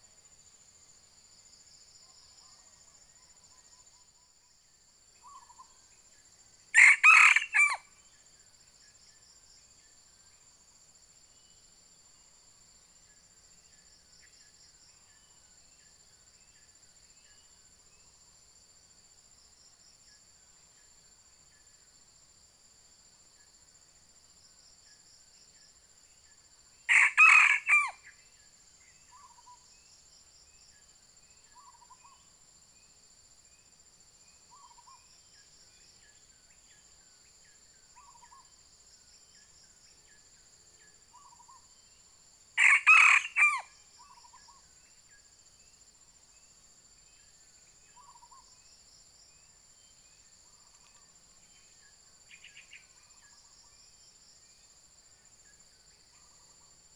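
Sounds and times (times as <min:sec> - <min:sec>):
insects buzzing: 0:00.0 - 0:56.9
rooster crowing: 0:06.8 - 0:07.8, 0:26.9 - 0:28.0, 0:42.6 - 0:43.7.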